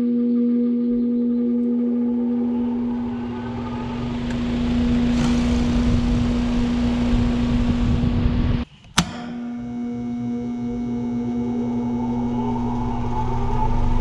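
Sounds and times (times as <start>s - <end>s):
steady electric hum: 0.0s - 14.0s
condenser fan pushing air: 2.5s - 14.0s.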